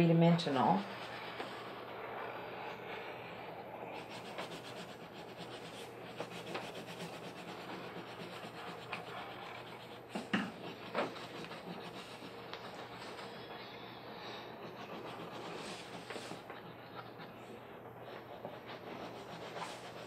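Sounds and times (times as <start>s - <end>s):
crayon scratching on paper: 0.3s - 20.0s.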